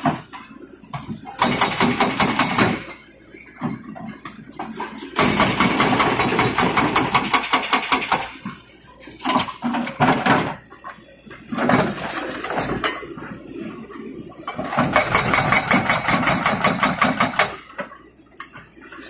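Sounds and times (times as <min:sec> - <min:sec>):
excavator engine running: 0:00.0 - 0:19.0
hydraulic breaker hammering concrete: 0:01.4 - 0:02.9, 0:05.2 - 0:08.3, 0:14.7 - 0:17.6.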